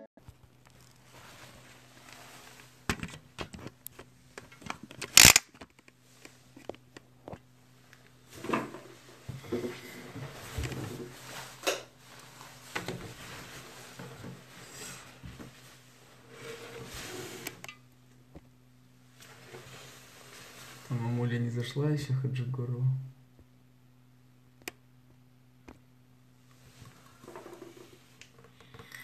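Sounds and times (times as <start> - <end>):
faint steady hum: 0.2 - 29.0
phone handling clicks and rustling: 2.9 - 7.4.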